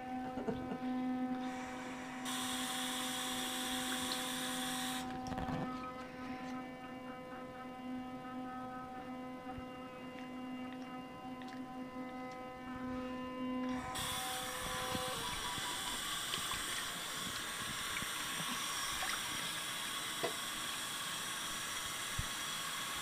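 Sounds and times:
electric toothbrush buzzing: 0:00.0 - 0:23.0
loud hiss: 0:01.4 - 0:05.1, 0:13.8 - 0:23.0.

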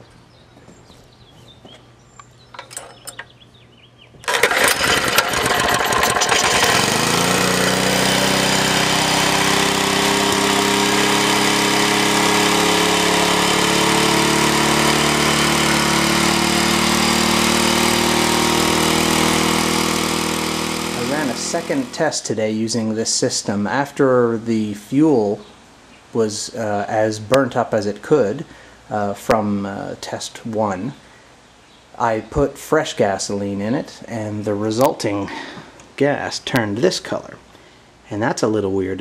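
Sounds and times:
small engine starting and running: 0:04.2 - 0:22.2.

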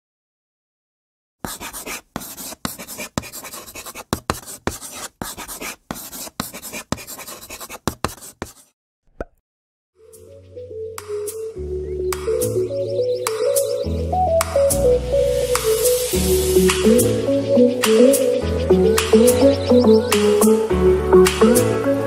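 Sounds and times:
pen scribbling on paper: 0:01.4 - 0:08.7.

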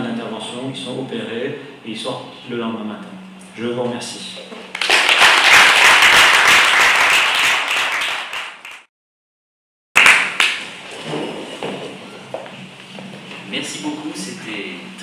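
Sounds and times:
audience applauding: 0:04.7 - 0:08.9, 0:10.0 - 0:10.7.

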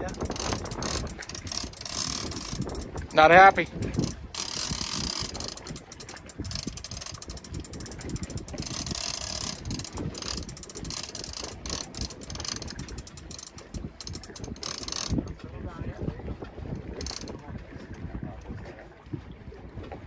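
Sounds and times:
fishing reel clicking: 0:00.0 - 0:15.4, 0:16.9 - 0:17.3.

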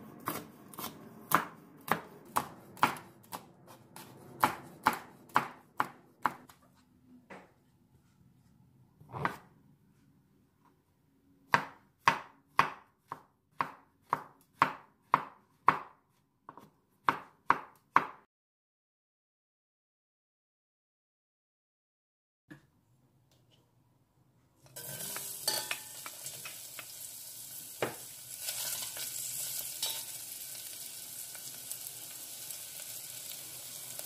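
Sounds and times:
knife chopping on wooden board: 0:00.2 - 0:06.5, 0:11.5 - 0:18.2.

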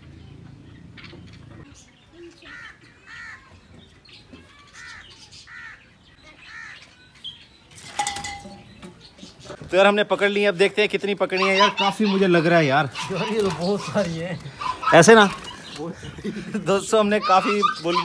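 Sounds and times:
bird calling: 0:10.9 - 0:18.0
wings flapping: 0:12.9 - 0:16.0.

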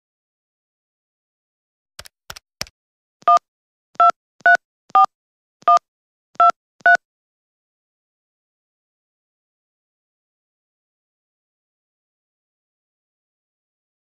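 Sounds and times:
keypad clicks: 0:02.0 - 0:03.4
two-tone keypad beeps: 0:03.2 - 0:03.4, 0:04.0 - 0:07.0.

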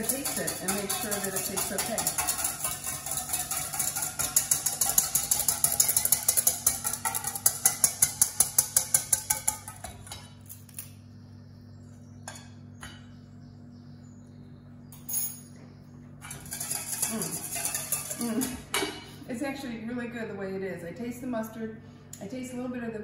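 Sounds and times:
whisk clattering in metal bowl: 0:00.0 - 0:10.3, 0:16.2 - 0:18.9.

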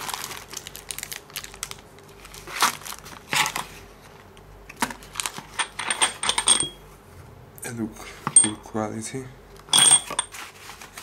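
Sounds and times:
paper and cardboard rustling: 0:10.3 - 0:11.0.

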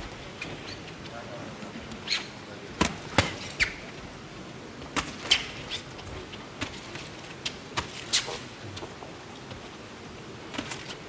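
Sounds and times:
arena crowd murmur: 0:00.9 - 0:05.0.

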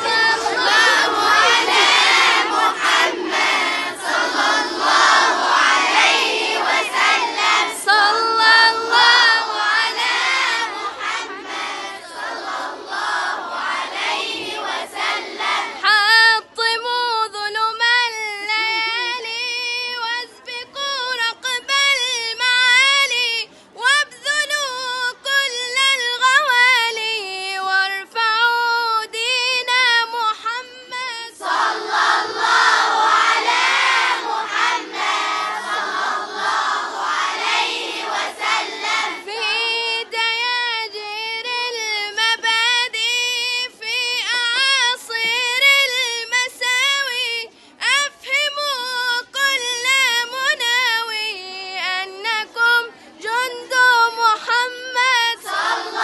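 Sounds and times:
girl reciting melodically: 0:00.0 - 0:56.0
many voices reciting together: 0:00.0 - 0:56.0.

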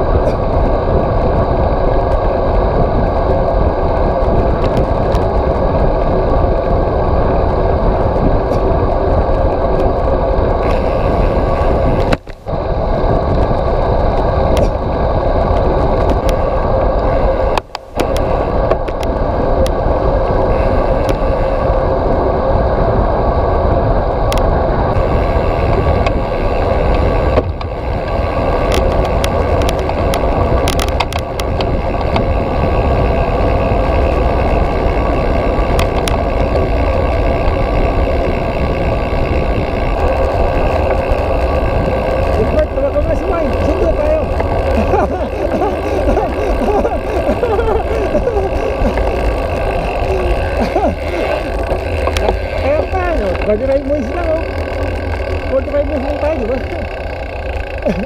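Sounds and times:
wind and road noise: 0:00.0 - 0:58.0
small clicks and rattles: 0:01.9 - 0:06.8, 0:25.6 - 0:58.0.

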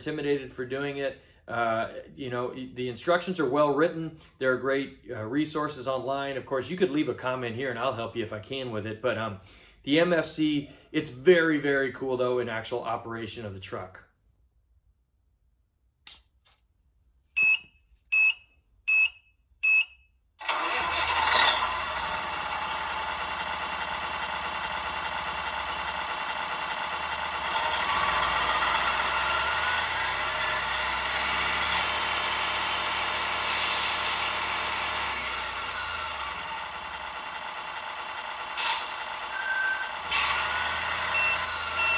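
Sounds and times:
short beeps: 0:17.4 - 0:20.1, 0:39.3 - 0:41.9
simulated truck engine: 0:20.4 - 0:41.9.

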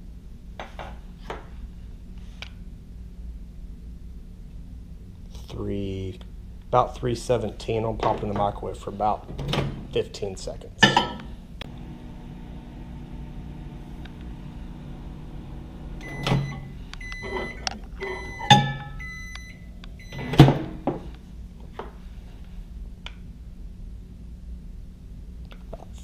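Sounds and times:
microwave oven humming: 0:10.8 - 0:21.6
short high beeps: 0:16.0 - 0:20.3.

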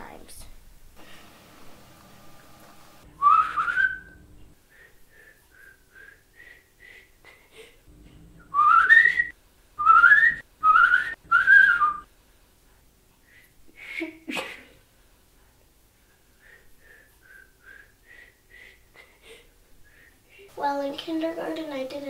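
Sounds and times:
girl whistling: 0:03.2 - 0:04.2, 0:08.5 - 0:12.0, 0:17.3 - 0:17.9.

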